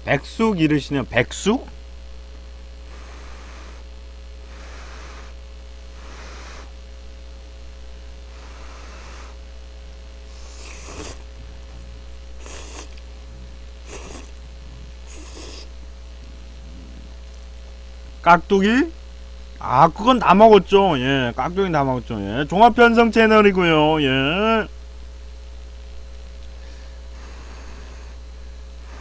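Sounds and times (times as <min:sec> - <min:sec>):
electrical hum: 0:00.0 - 0:29.0
man breathing hard through nose: 0:02.8 - 0:06.8, 0:08.3 - 0:09.4, 0:10.2 - 0:11.3, 0:12.4 - 0:13.0, 0:13.8 - 0:14.4, 0:15.0 - 0:15.7, 0:26.5 - 0:29.0
man slurping noodles: 0:10.3 - 0:11.3, 0:12.4 - 0:13.0, 0:13.8 - 0:14.4, 0:15.0 - 0:15.7.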